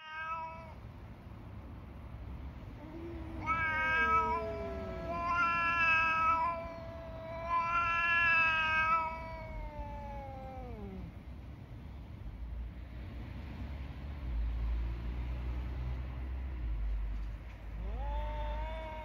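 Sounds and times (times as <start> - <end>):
cat threat yowl: 0.0 - 0.8, 2.7 - 11.2, 17.7 - 19.0
lower cat wail: 0.0 - 0.8, 2.7 - 11.2, 17.7 - 19.0.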